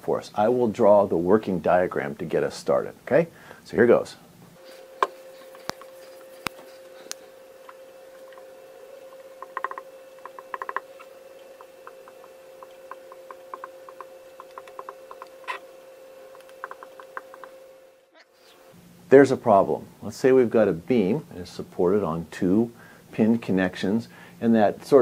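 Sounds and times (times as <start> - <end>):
faint steady hum: 0.0 - 25.0
marker squeaking on whiteboard: 13.2 - 15.7.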